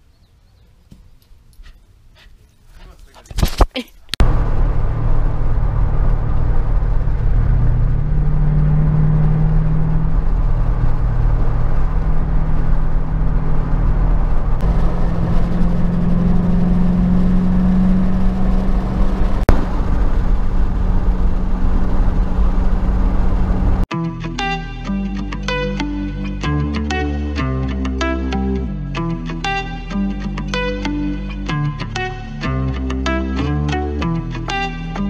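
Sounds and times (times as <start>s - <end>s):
road and wind noise: 0.0s - 35.0s
car engine drone: 4.2s - 23.9s.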